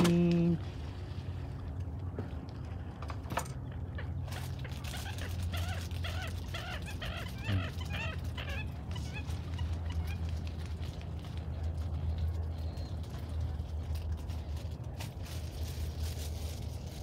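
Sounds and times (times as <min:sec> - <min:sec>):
animal yelping calls: 0:04.0 - 0:10.4.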